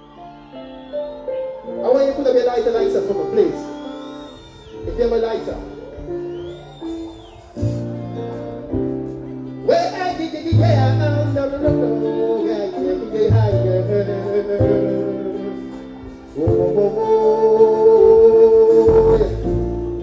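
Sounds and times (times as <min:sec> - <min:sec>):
backing music with held chords: 0:00.0 - 0:20.0
man singing: 0:09.6 - 0:20.0.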